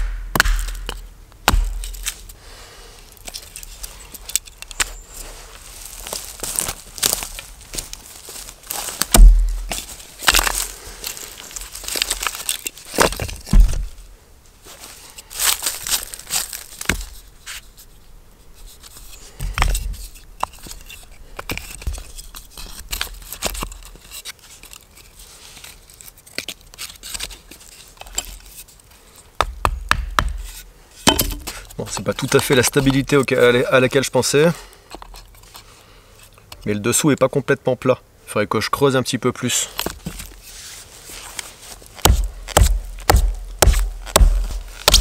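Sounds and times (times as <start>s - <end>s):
rustling of dry leaves: 1.7s - 29.4s, 39.4s - 45.0s
wood scraping: 3.0s - 14.0s, 30.2s - 33.5s, 39.7s - 45.0s
wooden blocks knocking: 31.1s - 31.6s.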